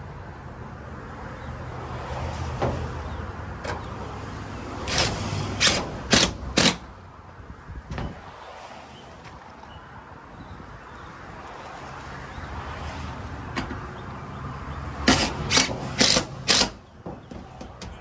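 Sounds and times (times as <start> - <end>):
cordless drill driving screw into metal: 4.9 - 6.8, 15.1 - 16.8.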